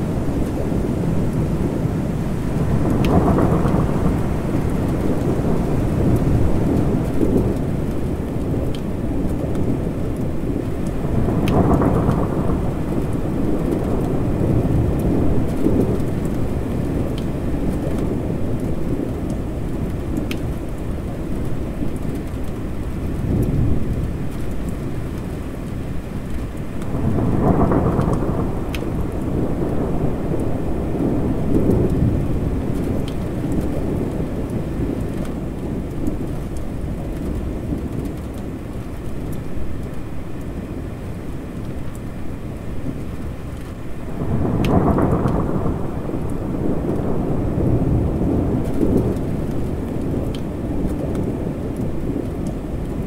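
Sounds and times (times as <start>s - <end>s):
rolling thunder: 0.0s - 25.0s, 26.6s - 38.9s, 42.8s - 53.0s
heavy rain: 0.0s - 53.0s.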